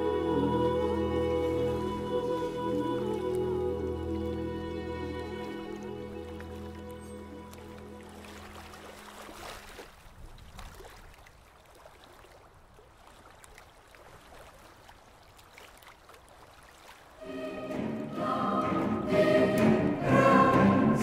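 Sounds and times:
background music: 0:00.0 - 0:09.1, 0:17.2 - 0:21.0.

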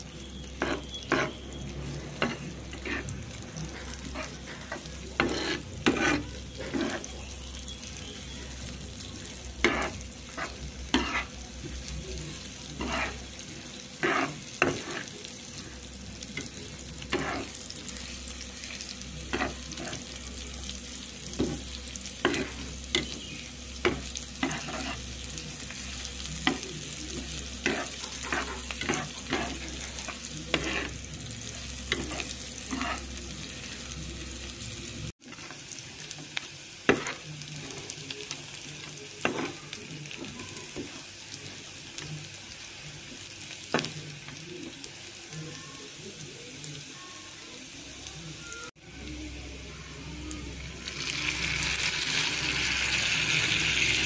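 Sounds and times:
food sizzling in hot oil: 0:00.0 - 0:54.0
metal spatula scraping a pan: 0:00.6 - 0:07.3, 0:09.6 - 0:11.4, 0:12.7 - 0:15.2, 0:16.4 - 0:17.6, 0:23.8 - 0:25.1, 0:27.6 - 0:33.2.

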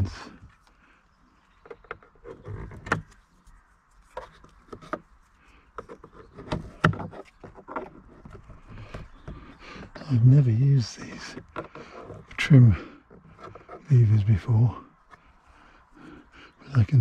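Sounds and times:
plastic trim panel scraping and creaking: 0:01.6 - 0:03.2, 0:04.1 - 0:05.1, 0:05.7 - 0:15.3.

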